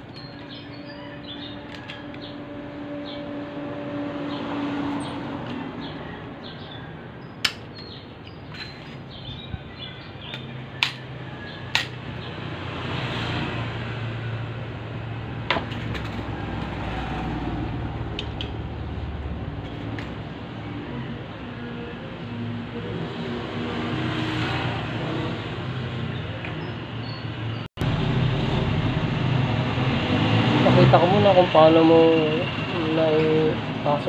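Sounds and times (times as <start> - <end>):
low rumble: 27.8 - 30.6.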